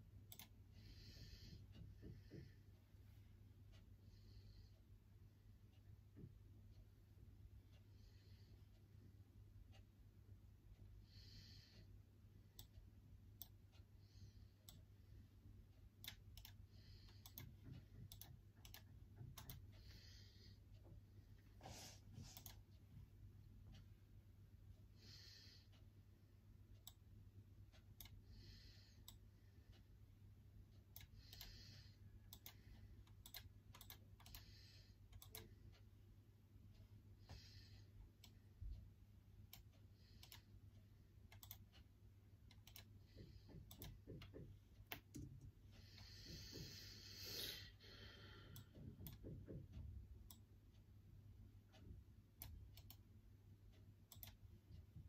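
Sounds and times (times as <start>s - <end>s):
low steady hum: 0.0s - 55.0s
computer keyboard typing: 32.3s - 34.5s, 41.3s - 41.7s.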